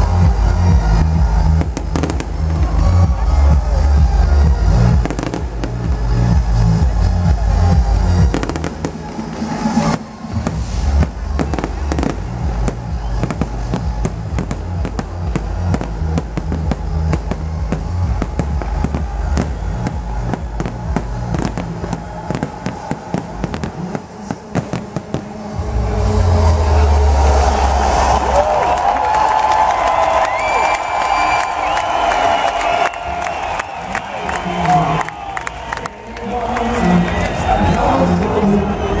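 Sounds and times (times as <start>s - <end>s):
electronic dance music: 0.0s - 28.8s
fireworks bangs and crackles: 0.9s - 3.7s, 4.5s - 25.6s.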